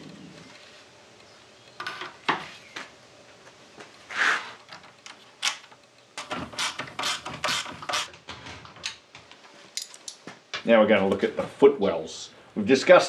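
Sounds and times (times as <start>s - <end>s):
hand tool scraping in steel: 4.1s - 4.6s.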